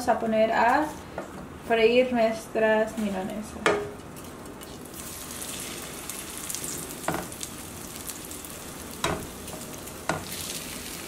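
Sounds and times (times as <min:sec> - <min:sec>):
chicken cutlet sizzling in oil: 0:04.6 - 0:11.0.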